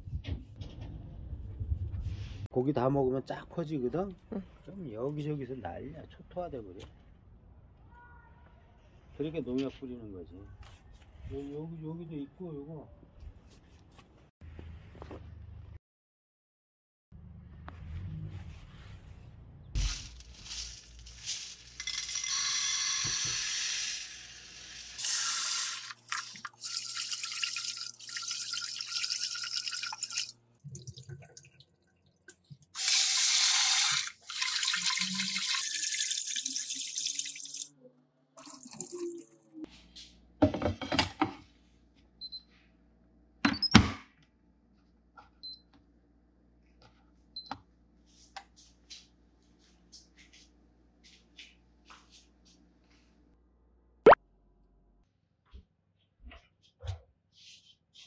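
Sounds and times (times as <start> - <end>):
tap water running into pot: 25.0 - 31.6, 32.8 - 37.7.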